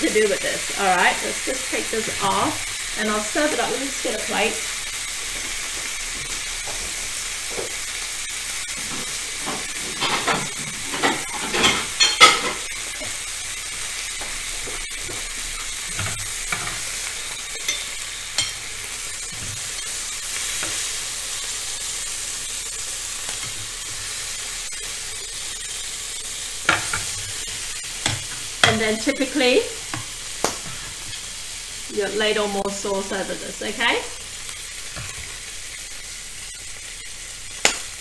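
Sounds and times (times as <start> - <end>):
chicken sizzling on grill pan: 0.0 - 38.0
crockery and utensils clattering: 9.8 - 12.7.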